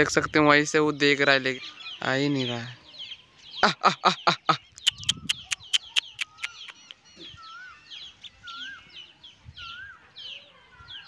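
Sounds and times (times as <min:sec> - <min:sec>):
small birds chirping: 0:00.0 - 0:11.0
chicken clucking: 0:03.6 - 0:07.4
sharp clicks: 0:04.8 - 0:07.0.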